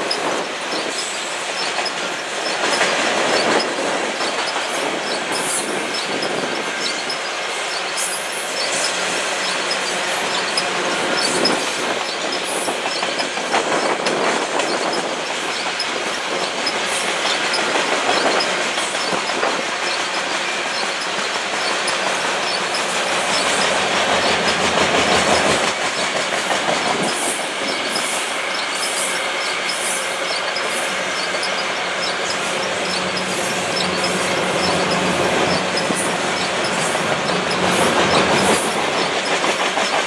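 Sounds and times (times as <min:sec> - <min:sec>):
high wheel squeal: 0:00.0 - 0:25.8, 0:26.8 - 0:40.0
train wheels rumbling on rails: 0:00.0 - 0:40.0.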